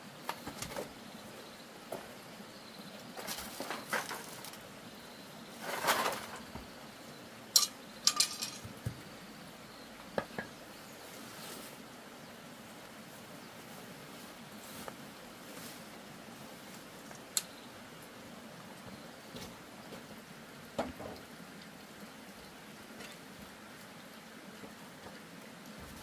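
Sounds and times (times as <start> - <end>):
small hard objects clinking: 7.6 - 8.8.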